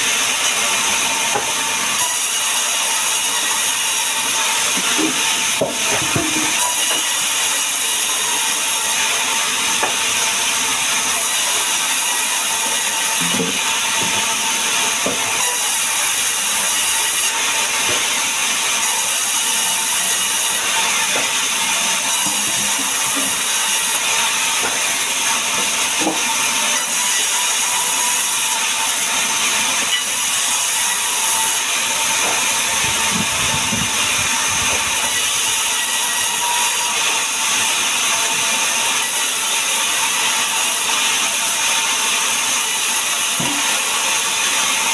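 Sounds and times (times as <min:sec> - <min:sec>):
band saw cutting logs: 0:00.0 - 0:44.9
wood knocking on saw table: 0:04.7 - 0:07.1, 0:21.2 - 0:21.4, 0:25.5 - 0:26.3, 0:32.2 - 0:32.5.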